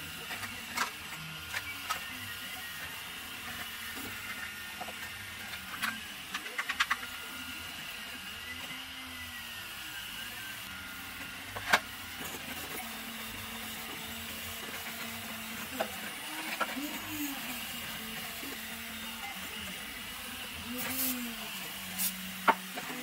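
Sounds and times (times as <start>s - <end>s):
printer stepper motors whirring: 0.0s - 23.0s.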